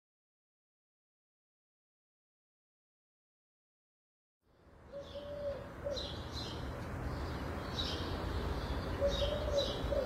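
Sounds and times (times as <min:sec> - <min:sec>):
small birds chirping: 0:04.5 - 0:10.0
dove cooing: 0:04.9 - 0:06.2, 0:08.9 - 0:10.0.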